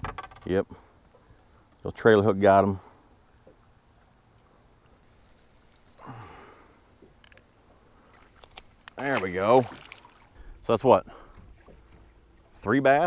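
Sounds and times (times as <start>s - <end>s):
metal clinks and jangling: 4.3s - 6.9s, 8.0s - 9.1s.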